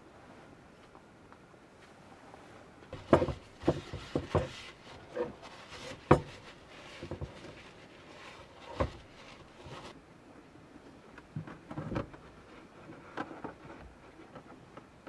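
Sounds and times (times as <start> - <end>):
paper towel rubbing pot: 3.0 - 10.0.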